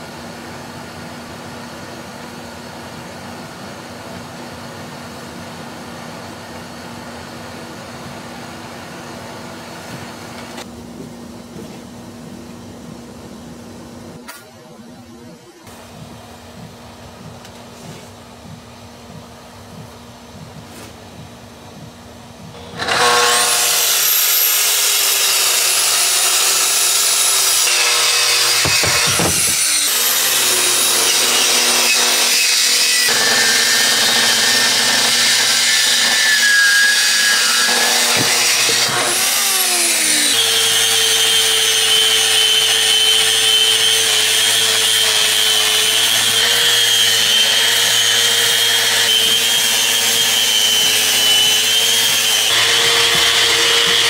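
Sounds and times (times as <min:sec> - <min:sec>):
track saw cutting wood: 0:22.5 - 0:54.0.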